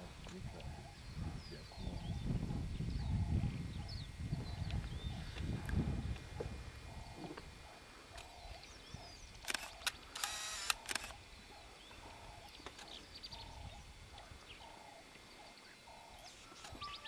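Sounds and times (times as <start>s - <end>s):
camera shutters clicking: 9.4s - 11.2s.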